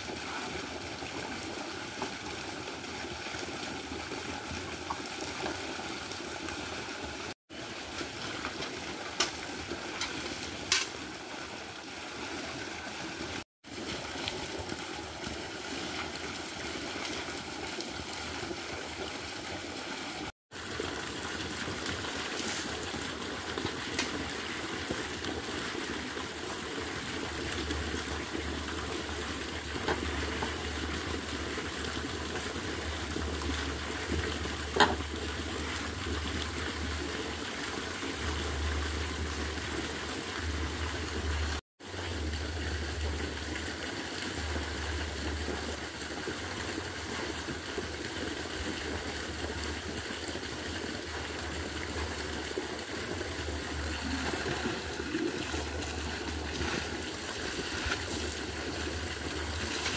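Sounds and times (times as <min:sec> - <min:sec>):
water running: 0:51.2 - 0:59.9.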